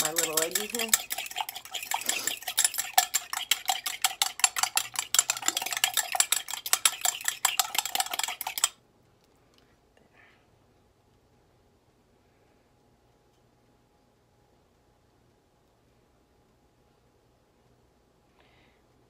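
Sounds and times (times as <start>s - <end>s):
whisk clicking against bowl: 0.0s - 8.8s.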